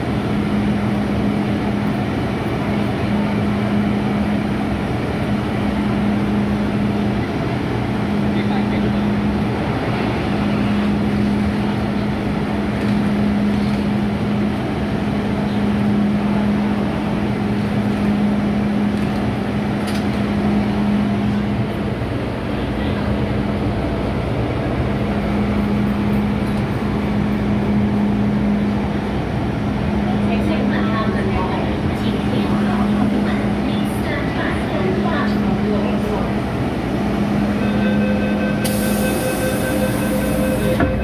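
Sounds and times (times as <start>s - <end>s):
train interior hum: 0.0s - 41.0s.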